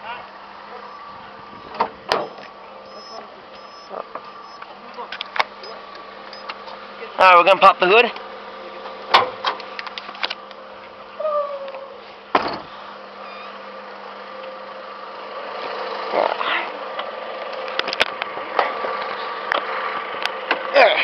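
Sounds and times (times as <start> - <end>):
steady hum: 0.1 - 7.0
car hood thump: 1.7 - 2.4, 12.3 - 12.7
car hood release clicks: 1.7 - 3.0.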